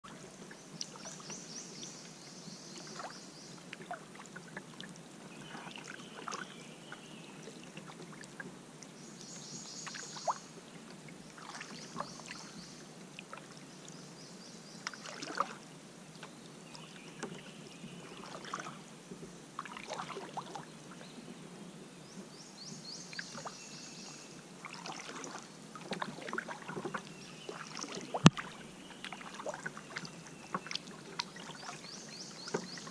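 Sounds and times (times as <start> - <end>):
paddle strokes in water: 0.0 - 22.4, 23.0 - 32.9
water dripping and trickling: 24.6 - 32.9.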